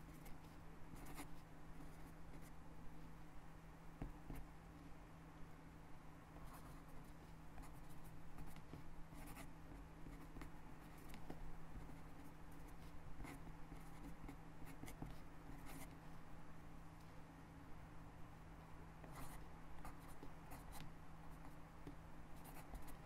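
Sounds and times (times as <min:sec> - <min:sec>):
pen scratching on paper: 0:00.0 - 0:02.5, 0:06.4 - 0:16.0, 0:19.0 - 0:23.0.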